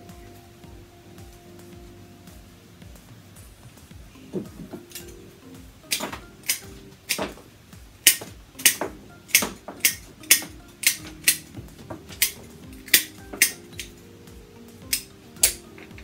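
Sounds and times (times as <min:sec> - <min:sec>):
faint background music: 0:00.0 - 0:16.0
flower stems clicking and snapping: 0:05.9 - 0:13.9.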